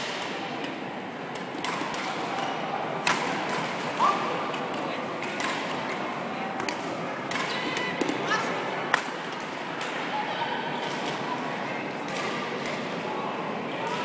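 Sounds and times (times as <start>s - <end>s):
rackets striking shuttlecock: 0.0s - 6.0s, 6.6s - 8.3s.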